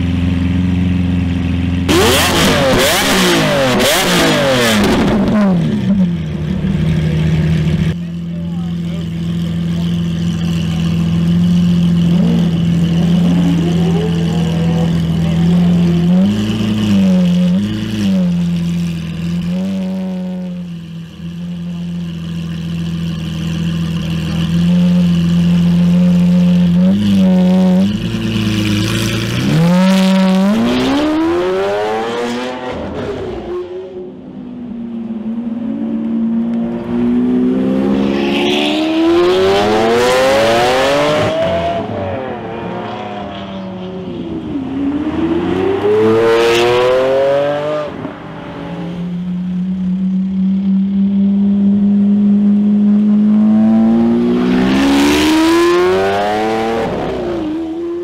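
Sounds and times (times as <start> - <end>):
sports car accelerating past: 34.9 - 58.0.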